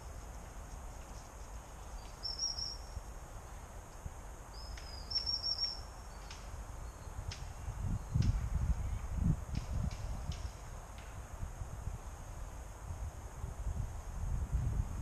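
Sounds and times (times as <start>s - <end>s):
wind rumble on microphone: 0.0s - 15.0s
small bird twittering: 1.9s - 3.0s, 4.6s - 7.1s.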